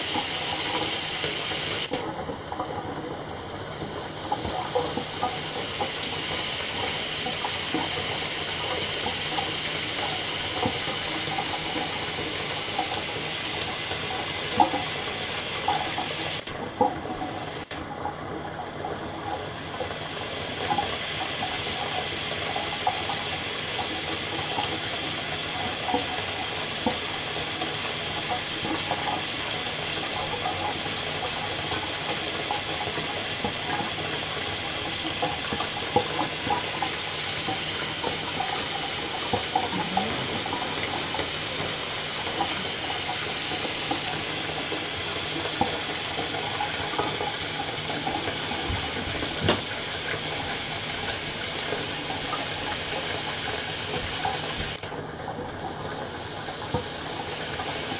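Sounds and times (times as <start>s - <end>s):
faucet water pouring and splashing: 0.0s - 57.9s.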